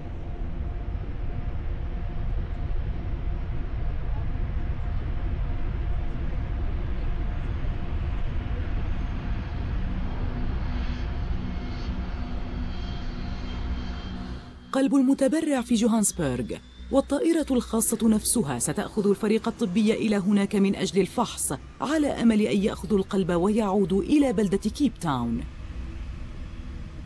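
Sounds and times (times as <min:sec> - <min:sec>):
small plane engine rumble in cabin: 0:00.0 - 0:14.6.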